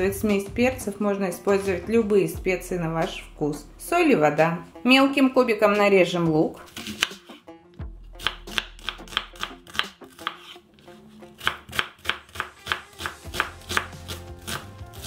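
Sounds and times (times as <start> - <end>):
knife chopping on cutting board: 6.7 - 7.4, 8.2 - 10.6, 11.4 - 15.0.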